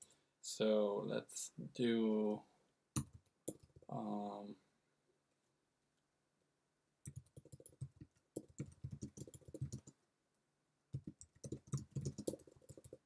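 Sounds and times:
typing on computer keyboard: 3.0 - 3.8, 7.0 - 10.0, 10.9 - 13.0.

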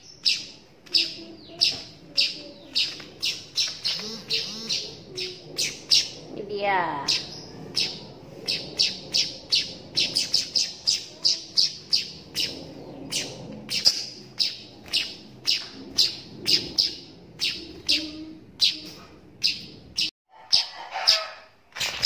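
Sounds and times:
young bird chirping: 0.0 - 6.2, 7.0 - 21.3.

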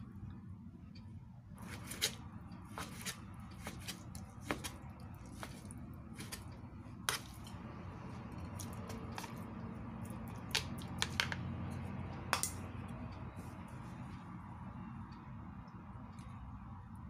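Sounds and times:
chopsticks clicking against bowl: 8.3 - 13.0.

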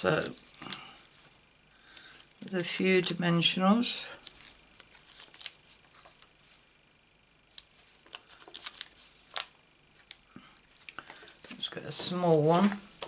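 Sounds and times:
paper rustling: 4.2 - 6.6, 7.8 - 10.1, 10.7 - 13.0.

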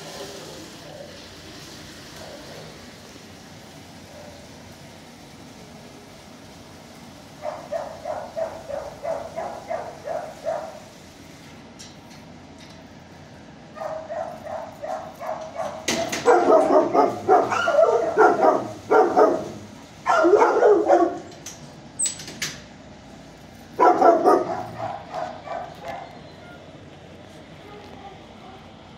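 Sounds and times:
dog barking: 4.1 - 4.4, 7.4 - 10.8, 13.7 - 21.3, 23.8 - 26.2, 27.6 - 28.7.

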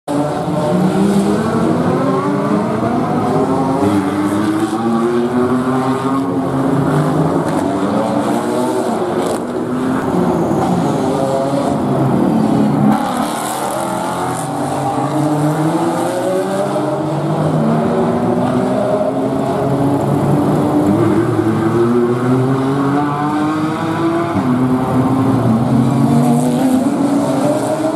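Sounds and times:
race car engines passing by: 0.1 - 27.9.

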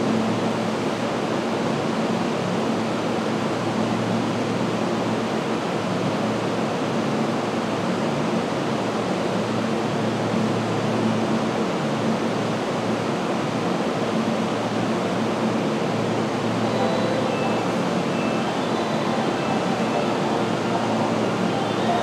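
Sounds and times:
train air conditioners humming: 0.0 - 22.0.

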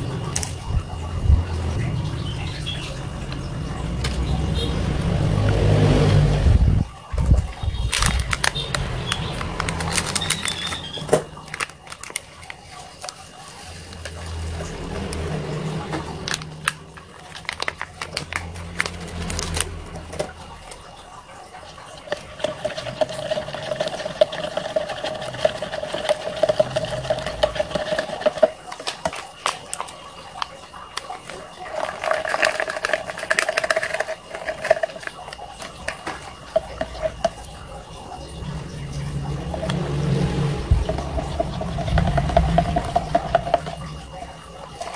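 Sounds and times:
spoon stirring in paper cup: 7.2 - 15.2, 16.2 - 20.3, 22.0 - 37.8, 38.4 - 44.9
steady humming tone: 33.1 - 44.9.

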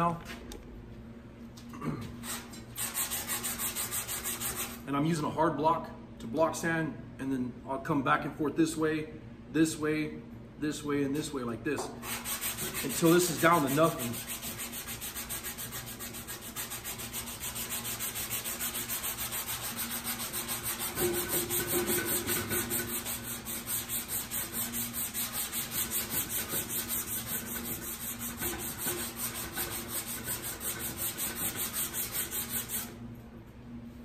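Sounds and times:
sanding block rasping on metal: 2.3 - 4.8, 12.0 - 33.0.

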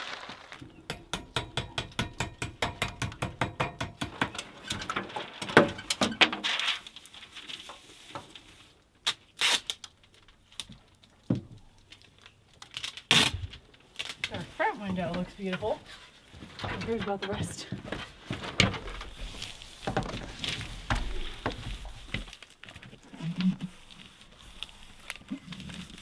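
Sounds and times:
knocks and rustles: 1.4 - 8.4, 14.8 - 23.7.

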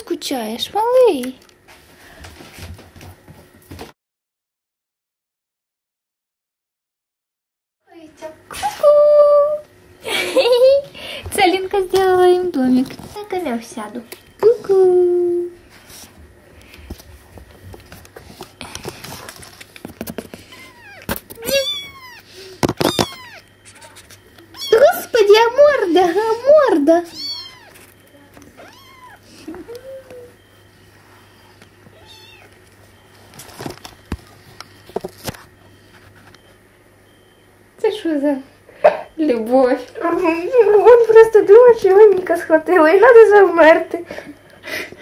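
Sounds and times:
kitten paws scratching cardboard: 15.7 - 25.0
kitten mewing: 20.4 - 25.2, 27.1 - 27.8, 28.4 - 30.3, 31.9 - 32.5.

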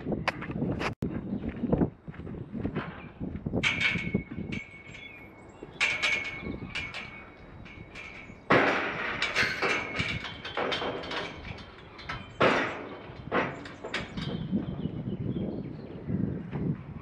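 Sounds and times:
metal gates rattling and clanging: 2.8 - 15.9.

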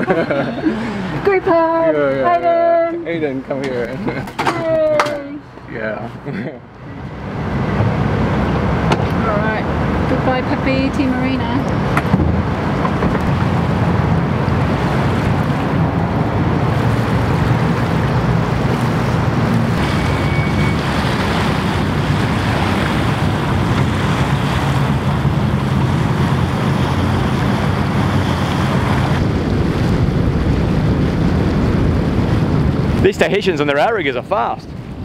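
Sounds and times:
water rushing along hull: 0.0 - 35.0
wind buffeting microphone: 7.0 - 35.0.

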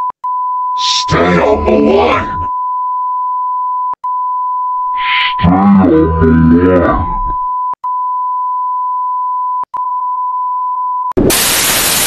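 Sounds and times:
loud tv static: 0.8 - 2.5, 5.0 - 7.4, 11.2 - 12.0.

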